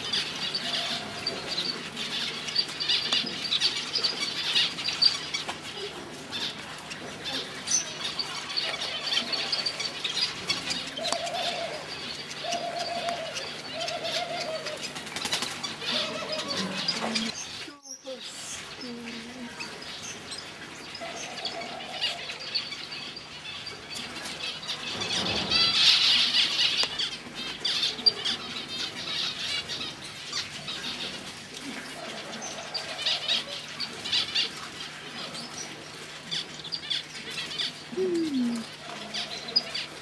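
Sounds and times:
wing flutter: 0:14.0 - 0:17.7
finches chirping: 0:36.6 - 0:40.0.

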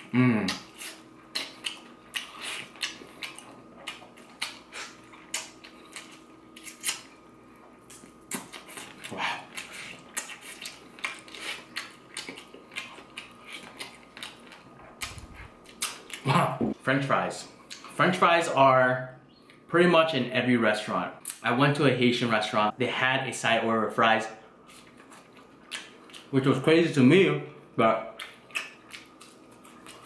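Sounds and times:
mouth smacking and sucking: 0:00.3 - 0:07.0.

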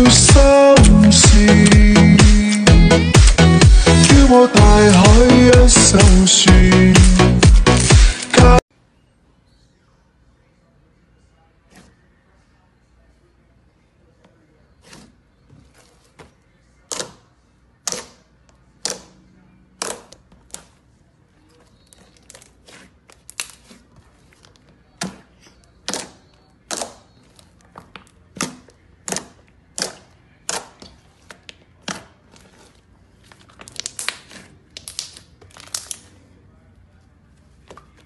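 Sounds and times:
slime popping and crackling: 0:31.8 - 0:36.1.

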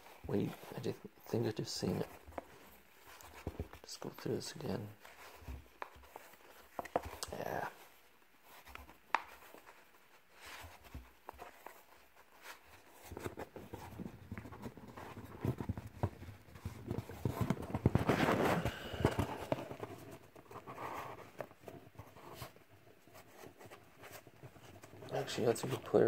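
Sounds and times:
trading cards clicking and rustling: 0:14.4 - 0:20.1.

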